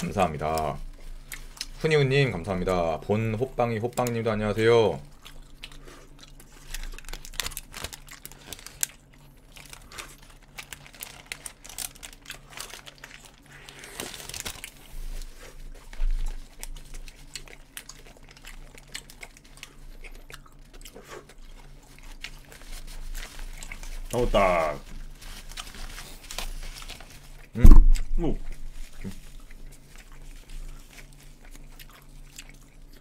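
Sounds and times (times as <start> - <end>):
chewing and biting: 0.0 - 33.0
faint steady hum: 0.0 - 33.0
paper wrappers crinkling: 6.3 - 19.9, 21.4 - 33.0.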